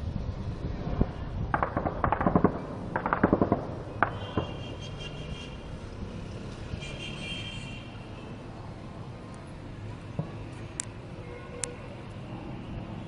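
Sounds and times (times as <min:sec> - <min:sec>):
automatic gunfire: 0:01.5 - 0:04.6.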